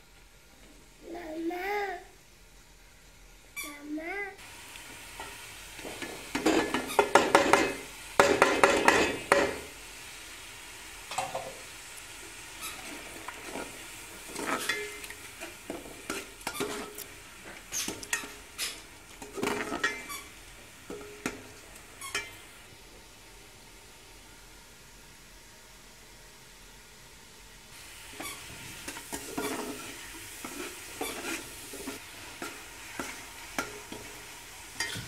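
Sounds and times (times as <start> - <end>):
sauce sizzling in a pot: 0.0 - 35.0
metal spoon scraping a pot: 12.6 - 17.1, 17.7 - 20.3, 22.0 - 22.4, 28.1 - 34.1.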